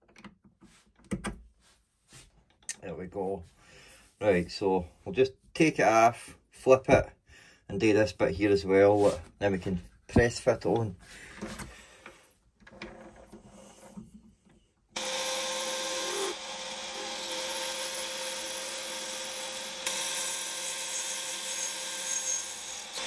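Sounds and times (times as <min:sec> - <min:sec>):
lathe running: 0:15.0 - 0:23.0.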